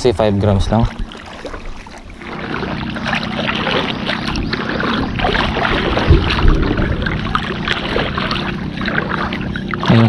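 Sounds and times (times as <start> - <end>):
water washing: 0.0 - 10.0
low thump: 6.0 - 7.5.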